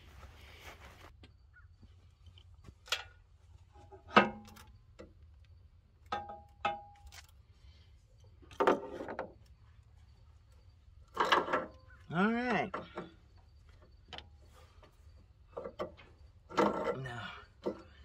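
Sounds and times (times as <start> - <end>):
metal hose fittings clanking: 6.1 - 7.4, 11.0 - 13.3, 15.4 - 18.0.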